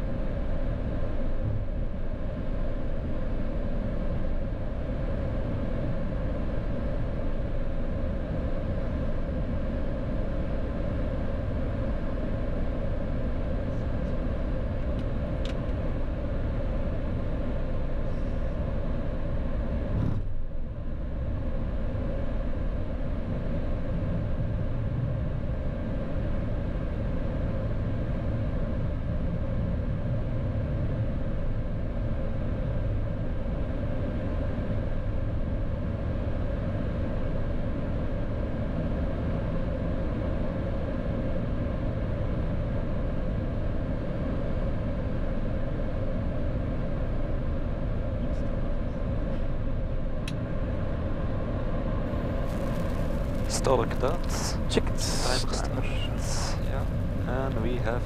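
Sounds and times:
jet engine rumble and hiss: 0.0 - 58.0.

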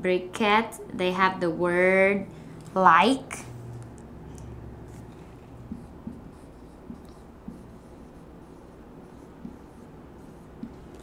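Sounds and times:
marker writing on a whiteboard: 2.8 - 11.0.

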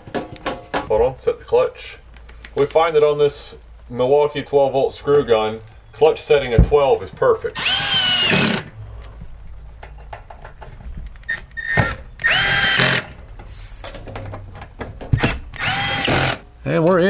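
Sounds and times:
cordless screw gun whirring: 7.5 - 8.7, 11.5 - 13.1, 15.2 - 16.4.

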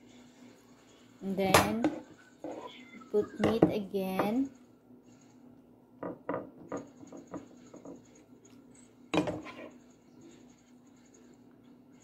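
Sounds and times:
spoon knocking and scraping dishes: 3.4 - 4.4, 6.0 - 8.1, 9.2 - 9.7.

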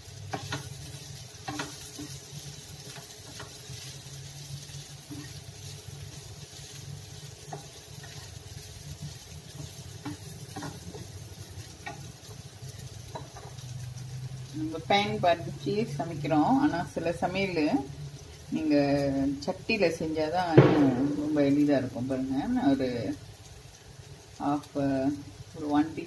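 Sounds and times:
soft sizzle: 0.0 - 26.0
spatula scraping frying pan: 0.1 - 14.0
spatula tapping pan: 0.3 - 3.9, 7.4 - 8.4, 9.1 - 12.4, 13.1 - 13.6.

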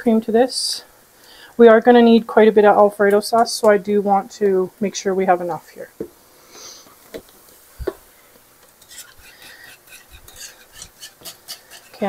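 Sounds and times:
utensil scraping and tapping a pan: 8.6 - 12.0.

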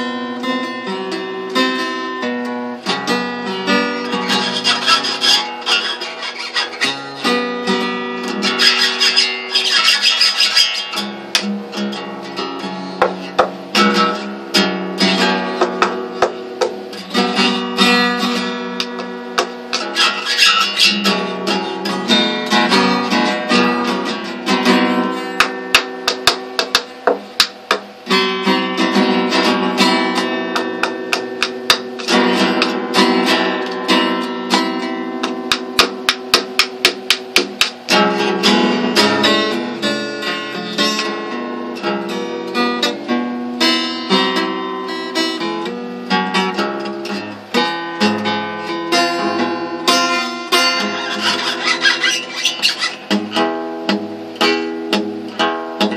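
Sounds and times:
acoustic guitar strumming chords: 0.0 - 55.9.

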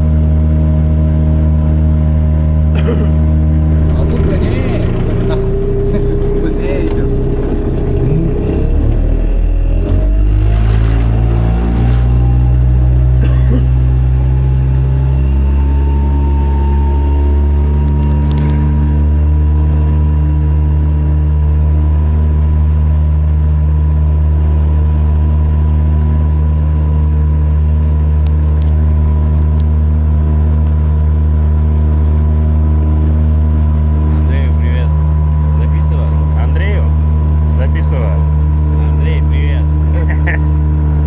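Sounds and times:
engine running steadily: 0.0 - 41.0.

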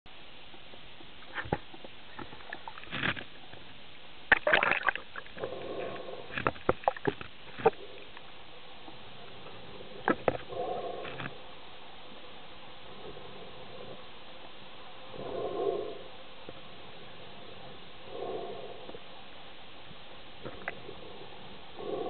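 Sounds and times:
steady underwater hiss: 0.1 - 22.0
bubbles crackling and gurgling: 4.3 - 5.5, 6.3 - 7.8.

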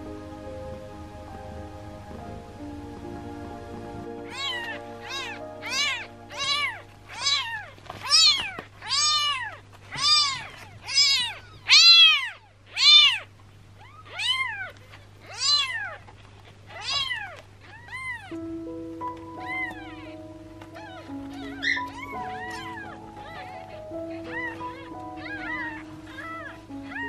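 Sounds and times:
kitten meowing: 4.3 - 16.0, 16.7 - 18.4, 19.0 - 27.0.

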